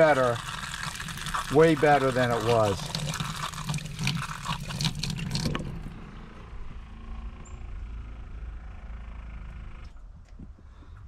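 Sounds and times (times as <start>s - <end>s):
faucet water splashing in steel sink: 0.0s - 5.9s.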